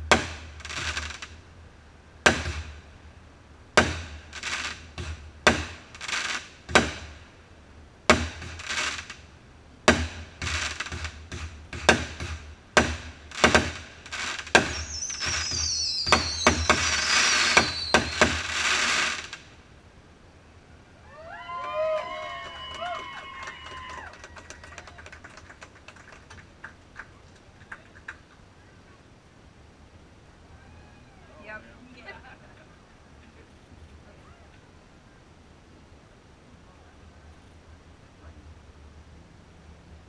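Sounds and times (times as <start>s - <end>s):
fireworks bangs: 0.0s - 1.4s, 2.2s - 3.0s, 3.7s - 7.4s, 8.0s - 19.6s
rapid crackling pops: 0.0s - 1.5s, 2.2s - 2.9s, 3.7s - 7.4s, 8.0s - 19.6s, 23.4s - 28.6s
falling firework whistles: 13.3s - 19.4s.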